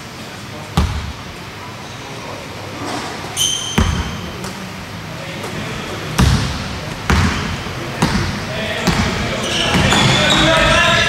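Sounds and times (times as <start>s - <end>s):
ball bouncing on court: 0.8s - 1.1s, 3.6s - 4.3s, 6.2s - 10.4s
shoe squeaking on court floor: 3.0s - 4.5s, 7.1s - 11.0s.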